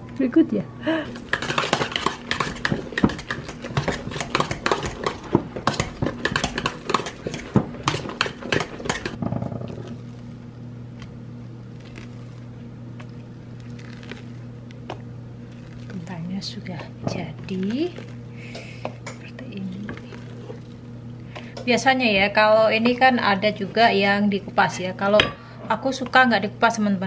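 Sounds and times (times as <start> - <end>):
steady low hum: 0.0 - 27.0
potato masher knocking on pot: 1.2 - 9.3.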